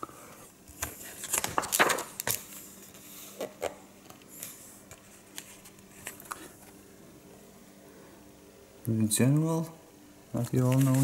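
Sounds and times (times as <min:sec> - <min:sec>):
book pages rustling: 0:00.7 - 0:03.0, 0:10.5 - 0:11.0.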